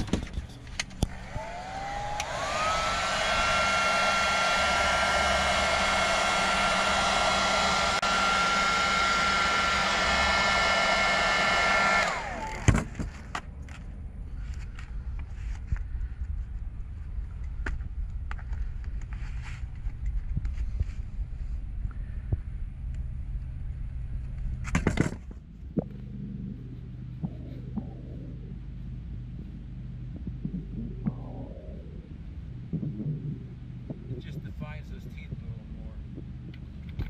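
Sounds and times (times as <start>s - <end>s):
electric air blower whine: 0.8s - 13.0s.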